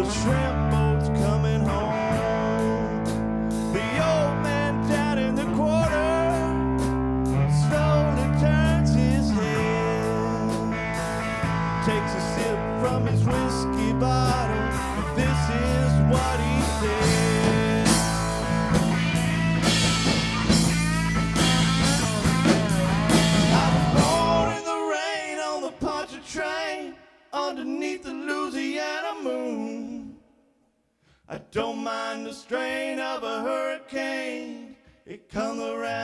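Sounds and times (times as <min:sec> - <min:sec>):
live rock band playing: 0:00.0 - 0:24.6
sparse melodic guitar line: 0:00.0 - 0:24.6.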